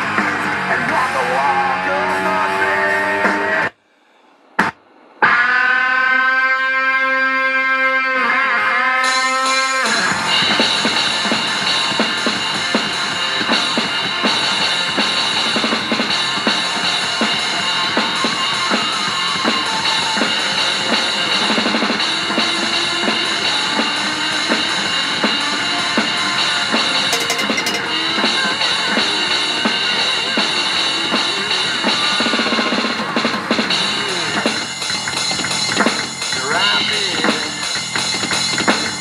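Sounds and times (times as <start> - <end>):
drum kit kick and snare: 27.1 - 28.0.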